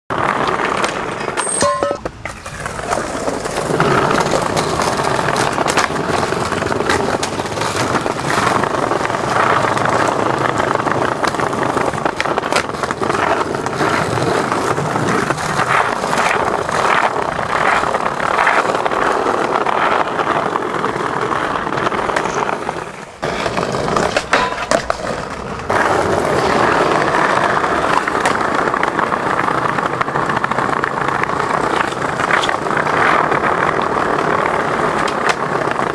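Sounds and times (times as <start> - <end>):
skateboard clacks: 0.1 - 35.9
skateboard wheels rolling on pavement: 0.1 - 35.9.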